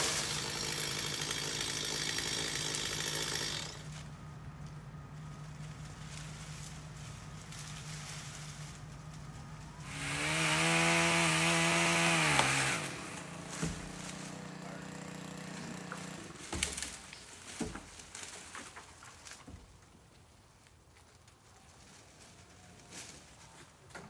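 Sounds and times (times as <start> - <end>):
chainsaw idling and revving: 0.0 - 4.1, 9.8 - 17.0
sharp thumps: 11.8 - 14.3.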